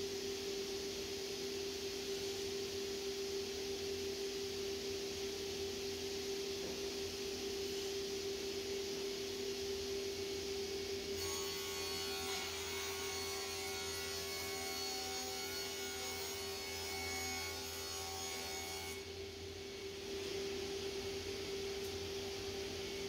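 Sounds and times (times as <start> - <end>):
saw cutting through wood panel: 11.2 - 19.0.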